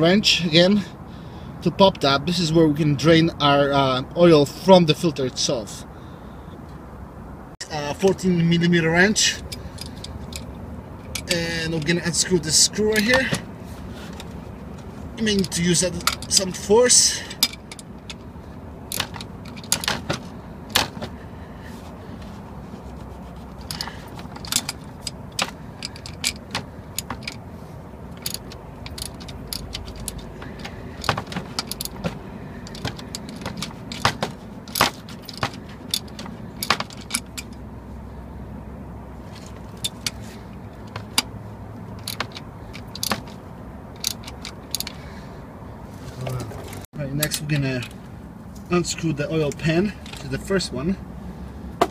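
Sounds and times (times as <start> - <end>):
wrench clicking and clinking: 9.4 - 13.4, 15.2 - 18.2, 18.9 - 21.0, 23.6 - 27.4, 28.1 - 37.6, 39.4 - 41.3, 42.0 - 45.0.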